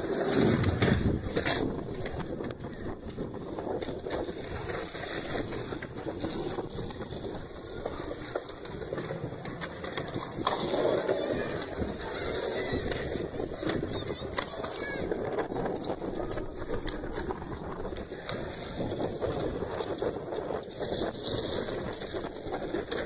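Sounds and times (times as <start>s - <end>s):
wind: 0.0s - 23.0s
faint voices: 6.0s - 19.3s.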